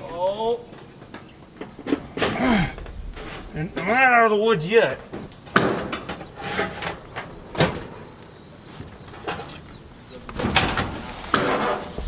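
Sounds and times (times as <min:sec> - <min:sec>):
sharp knocks on metal: 0:05.5 - 0:06.3
metal panel scraping and rattling: 0:05.5 - 0:07.9, 0:10.4 - 0:12.0.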